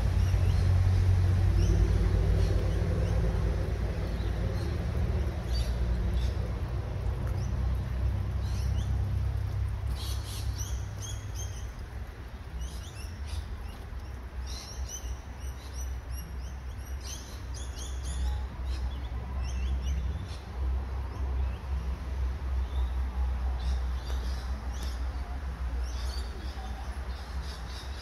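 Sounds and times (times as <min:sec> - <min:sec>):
low steady rumble: 0:00.0 - 0:14.9
small birds chirping: 0:00.0 - 0:28.0.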